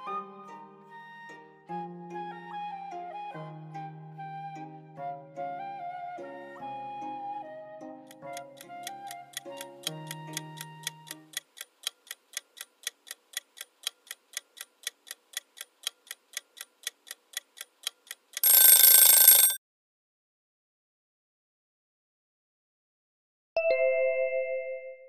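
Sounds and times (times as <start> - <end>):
background music: 0.0 - 11.4
clock ticking: 8.1 - 19.6
alarm ringing: 18.4 - 19.6.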